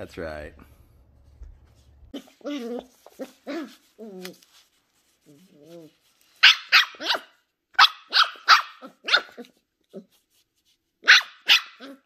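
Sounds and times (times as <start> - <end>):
puppy barking in high yaps: 6.4 - 9.6, 11.0 - 12.0.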